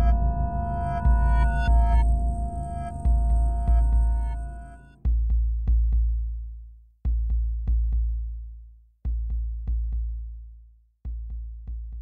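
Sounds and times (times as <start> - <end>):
electronic drone music: 0.0 - 5.0
deep bass boom: 0.0 - 6.0.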